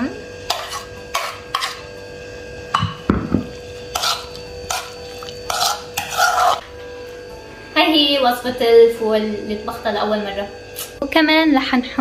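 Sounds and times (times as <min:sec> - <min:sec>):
metal spoon scraping plate: 0:00.5 - 0:01.9, 0:03.7 - 0:06.6.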